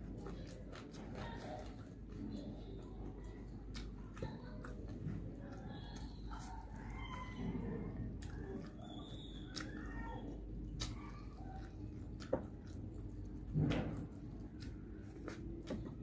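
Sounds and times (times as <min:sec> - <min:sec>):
chewing: 0:00.0 - 0:16.0
small clicks and smacks: 0:08.1 - 0:16.0.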